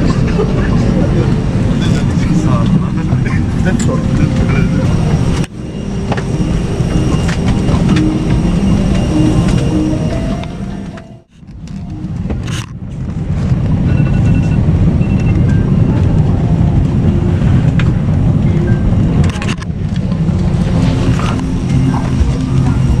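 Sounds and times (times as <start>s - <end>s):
background music: 0.0s - 12.4s
low engine rumble: 0.0s - 23.0s.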